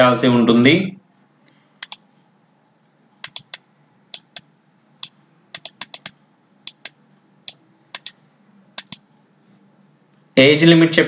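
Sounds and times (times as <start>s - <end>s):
computer keyboard keystrokes: 1.8s - 2.0s, 3.2s - 8.2s, 8.8s - 9.0s.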